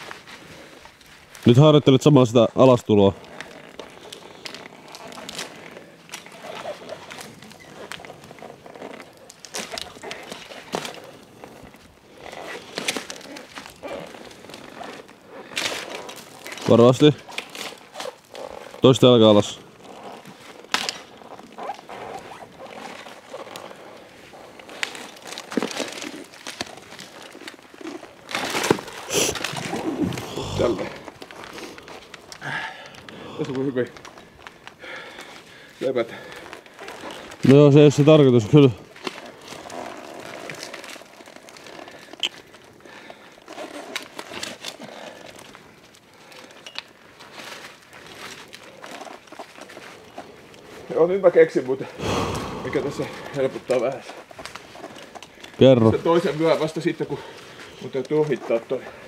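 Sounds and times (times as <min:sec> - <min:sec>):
rustling and crinkling: 0:00.0 - 0:52.0, 0:52.6 - 0:59.0
person climbing down rustling: 0:19.7 - 0:37.8.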